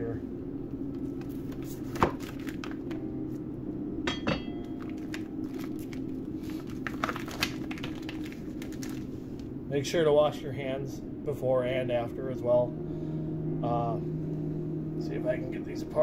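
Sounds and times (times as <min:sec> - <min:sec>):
paper wrapping crinkling: 0:01.1 - 0:03.0, 0:04.7 - 0:09.5.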